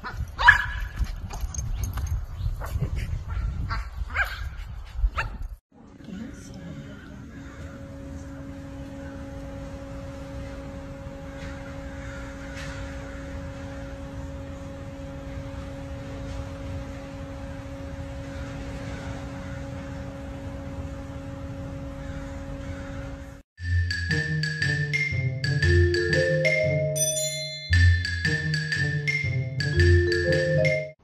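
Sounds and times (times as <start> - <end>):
low hum: 5.8 - 23.4
faint bird calls: 6.1 - 9.4, 22.0 - 23.2.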